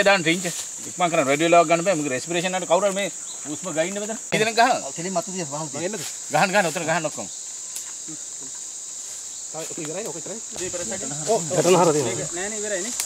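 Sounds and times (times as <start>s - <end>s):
men talking: 0.0s - 7.3s, 9.5s - 13.0s
forest insects droning: 0.0s - 13.0s.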